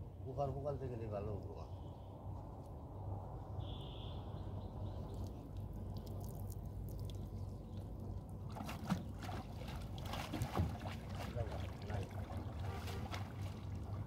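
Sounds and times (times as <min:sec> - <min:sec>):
water dripping and splashing: 0:05.1 - 0:14.0.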